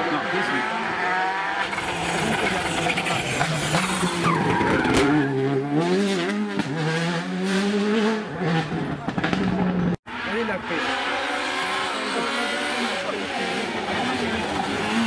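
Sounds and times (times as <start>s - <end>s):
rally car engine with gear changes: 0.0s - 15.0s.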